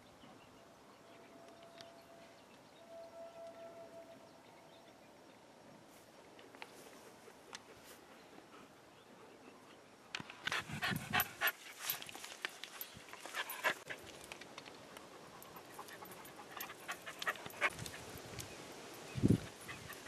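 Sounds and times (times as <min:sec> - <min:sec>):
dog panting: 0:10.5 - 0:12.0, 0:13.2 - 0:14.0, 0:15.1 - 0:18.0.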